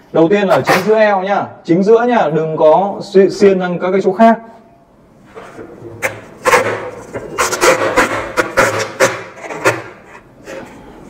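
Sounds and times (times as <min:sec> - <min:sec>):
tape pulled off roll tearing: 0:05.4 - 0:10.7.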